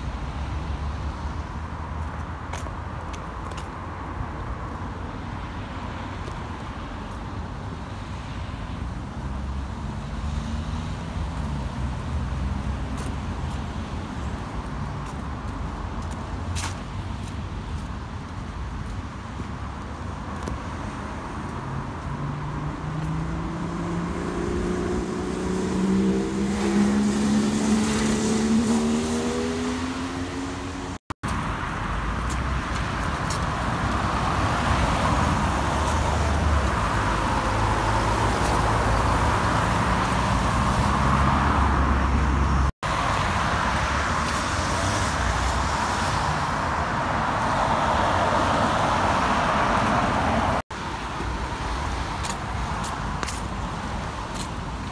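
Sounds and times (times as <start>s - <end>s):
road traffic: 0.0s - 54.9s
rush of tyres: 8.2s - 54.9s
vehicle accelerating away: 22.4s - 31.0s.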